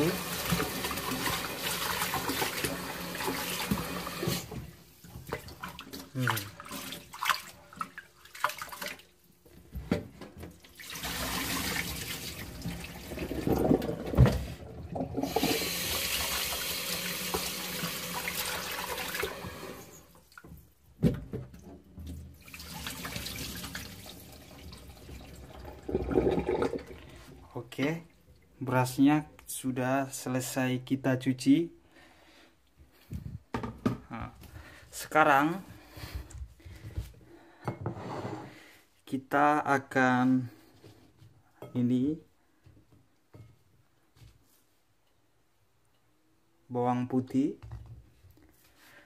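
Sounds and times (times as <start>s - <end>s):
tap water running: 0.0s - 9.1s, 10.3s - 20.7s, 21.3s - 27.2s
rice washed by hand: 10.7s - 14.6s.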